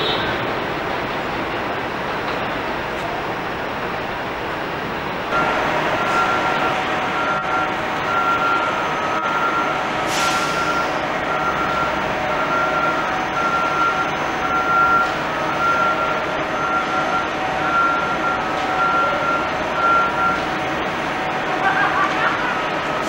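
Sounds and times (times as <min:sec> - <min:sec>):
train rumbling on elevated track: 0:00.0 - 0:23.0
reversing alarm beeping: 0:05.3 - 0:21.4.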